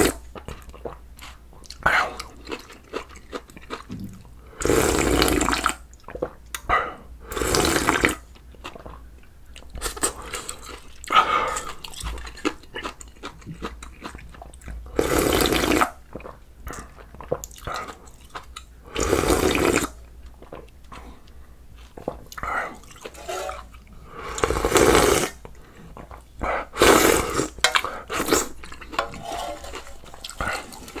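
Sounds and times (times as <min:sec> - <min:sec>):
loud slurps of soup: 0:04.6 - 0:05.8, 0:07.3 - 0:08.2, 0:15.0 - 0:16.0, 0:18.9 - 0:20.0, 0:22.9 - 0:25.4, 0:26.7 - 0:31.0.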